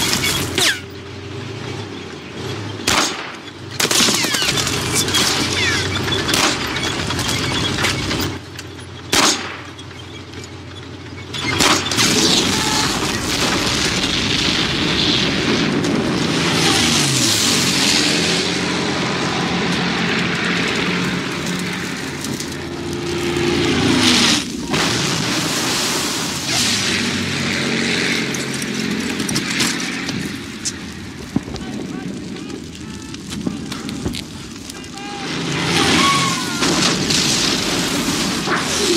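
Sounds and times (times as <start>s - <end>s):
fire burning: 0.0s - 38.9s
pistol shot: 2.8s - 4.5s, 9.1s - 9.7s
huge explosion: 11.8s - 38.9s
aircraft engines passing: 12.4s - 38.9s.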